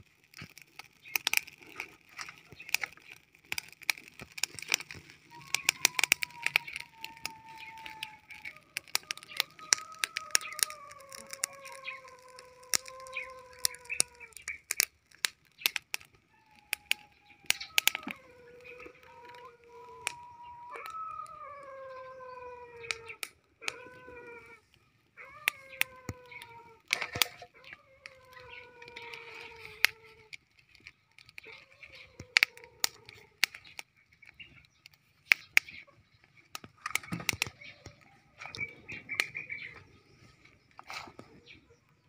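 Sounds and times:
firewood crackling and popping: 0.0 - 42.0
roosters crowing: 5.2 - 14.6, 16.2 - 30.0.

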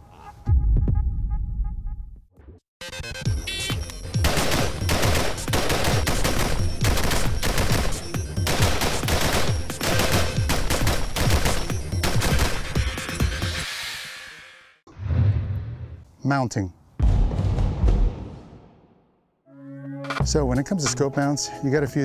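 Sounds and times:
rifle firing rapid shots: 4.2 - 12.9.

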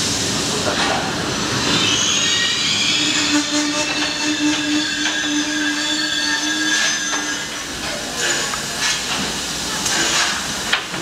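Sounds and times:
train squealing: 1.4 - 9.0.

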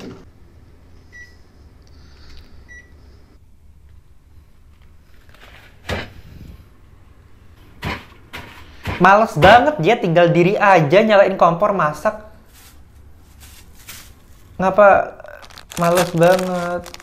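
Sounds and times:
rustling: 12.5 - 14.6, 15.3 - 17.0.

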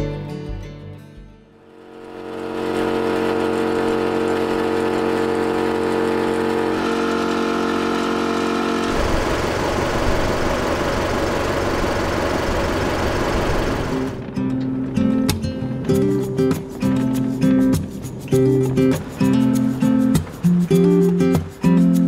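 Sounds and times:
air compressor motor humming: 1.6 - 14.3.

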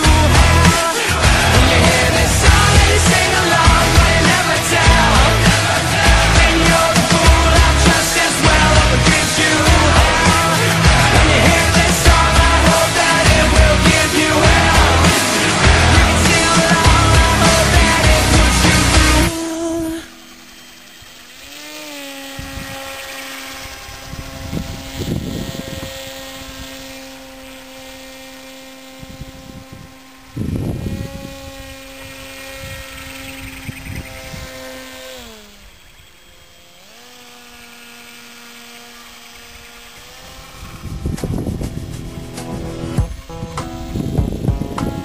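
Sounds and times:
background music: 0.0 - 19.9
model aircraft motor buzzing: 0.0 - 45.0
wind gusts on microphone: 22.3 - 23.0, 23.6 - 27.1, 28.9 - 35.8, 40.2 - 45.0.

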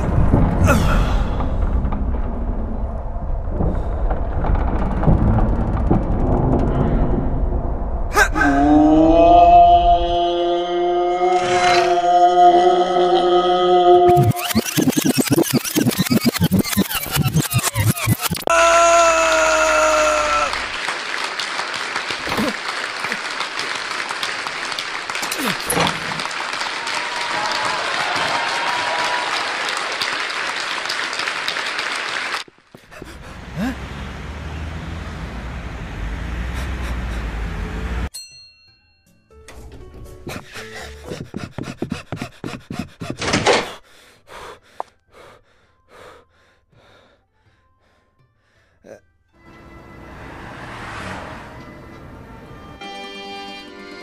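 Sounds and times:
cartoon knocks and thuds: 0.0 - 2.4, 14.1 - 18.5, 41.0 - 43.8
man screaming: 8.2 - 14.2, 18.5 - 20.7
applause-like rushing noise: 19.7 - 32.5
heavy panting breaths: 32.8 - 33.8, 36.5 - 37.5, 40.3 - 49.0.

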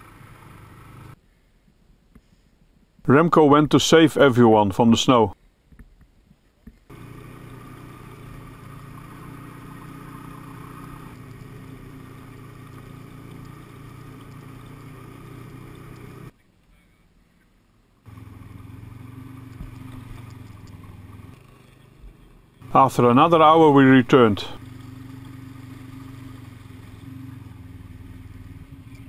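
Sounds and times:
snowmobile engine running: 6.9 - 16.3, 18.1 - 29.0.

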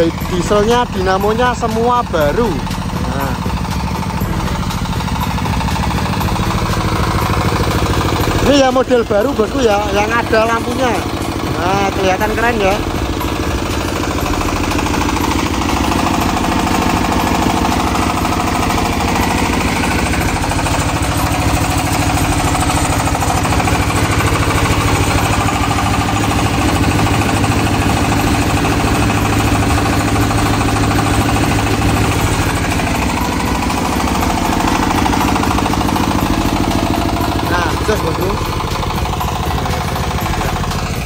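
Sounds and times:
diesel generator engine running: 0.0 - 41.0.

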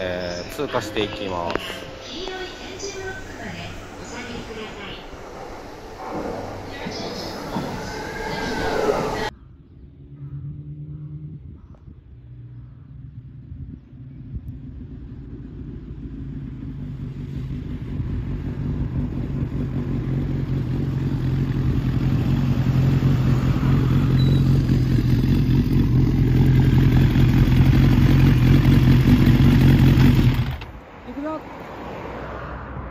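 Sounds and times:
motorcycle engine running: 9.9 - 30.8.

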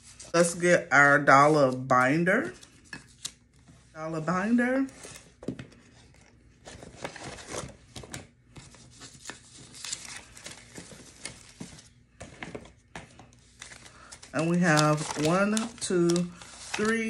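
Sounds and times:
paper bills rustling and crinkling: 6.1 - 17.0
paper crackles and taps: 7.9 - 17.0.

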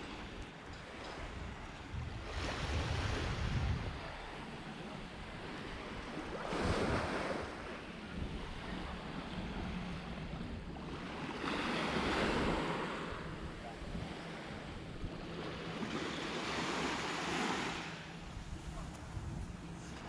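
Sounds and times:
wind rumble on microphone: 0.0 - 20.0
sea waves washing up beach: 10.8 - 20.0.

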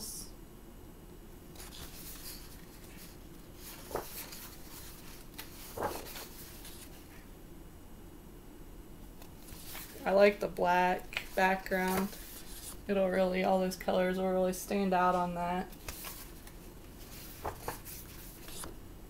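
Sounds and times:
faint steady hum: 0.0 - 19.0
paper rustling: 1.6 - 7.2, 9.2 - 10.2, 11.1 - 12.8, 15.7 - 18.8.

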